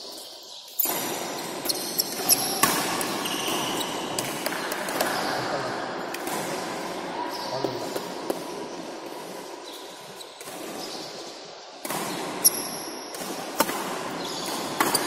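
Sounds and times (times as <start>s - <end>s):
racket hitting shuttlecock: 0.7s - 5.3s, 6.0s - 7.0s, 10.4s - 15.0s.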